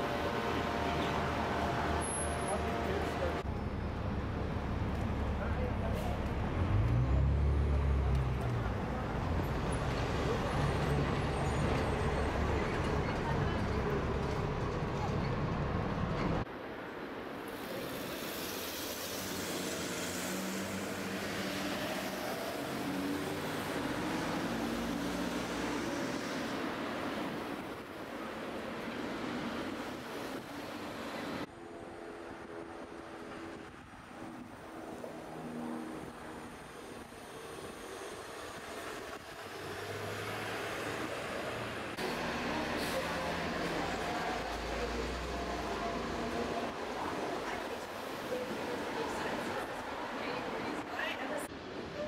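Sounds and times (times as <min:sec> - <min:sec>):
traffic tyre and engine noise: 0:00.0 - 0:52.0
hum of passing vehicles: 0:18.3 - 0:52.0.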